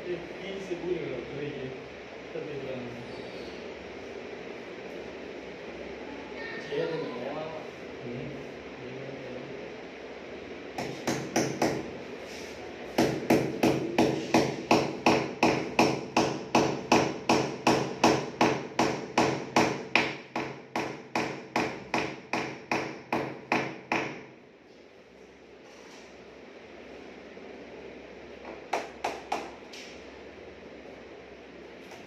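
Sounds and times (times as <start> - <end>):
hammer tapping a nail: 10.8 - 11.9, 13.0 - 24.2, 28.4 - 29.6.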